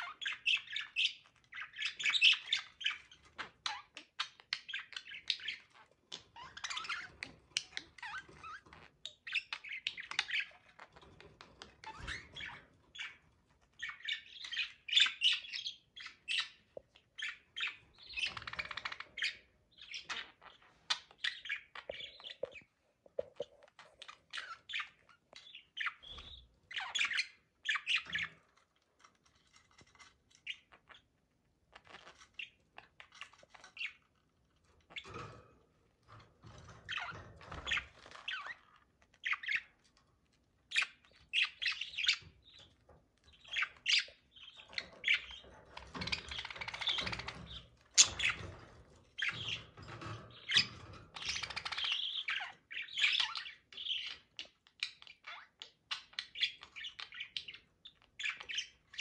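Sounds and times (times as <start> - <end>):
budgerigars chirping: 0.0 - 11.0, 13.8 - 22.7, 23.4 - 28.4, 36.9 - 39.8, 40.7 - 59.0.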